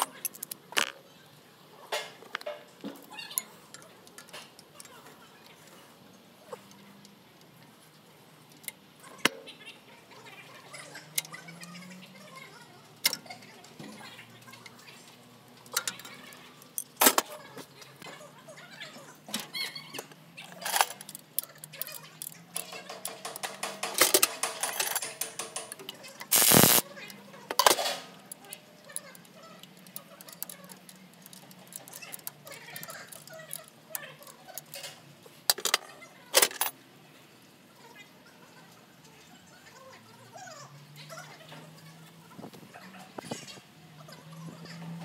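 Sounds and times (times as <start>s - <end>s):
metal tools clinking on engine: 20.6s - 25.9s
rapid ratcheting: 20.6s - 26.8s
sharp metallic clicks: 21.0s - 26.8s
cordless impact wrench burst: 26.3s - 26.8s.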